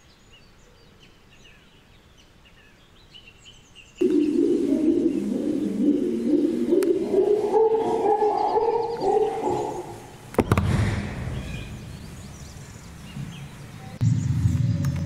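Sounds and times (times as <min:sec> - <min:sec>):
chimpanzees hooting: 0:04.0 - 0:10.3
hollow hum: 0:04.0 - 0:15.0.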